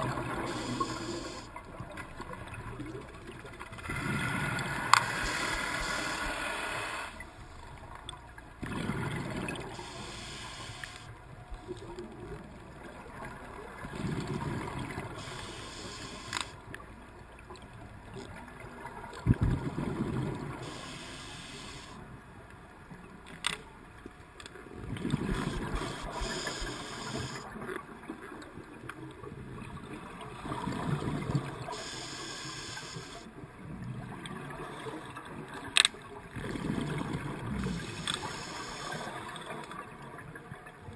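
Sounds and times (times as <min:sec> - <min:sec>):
regulator hissing inhale: 0:00.3 - 0:01.5, 0:04.0 - 0:07.2, 0:09.7 - 0:11.2, 0:15.2 - 0:16.6, 0:20.6 - 0:22.0, 0:25.4 - 0:27.5, 0:31.7 - 0:33.3, 0:37.6 - 0:39.4
gurgling exhaled bubbles: 0:02.5 - 0:06.9, 0:08.6 - 0:10.4, 0:11.8 - 0:15.8, 0:19.2 - 0:20.8, 0:24.8 - 0:27.4, 0:29.5 - 0:31.8, 0:36.3 - 0:39.6.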